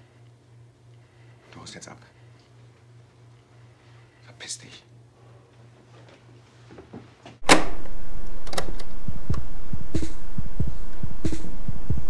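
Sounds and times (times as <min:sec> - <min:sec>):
throbbing low beat: 0:07.8 - 0:12.0.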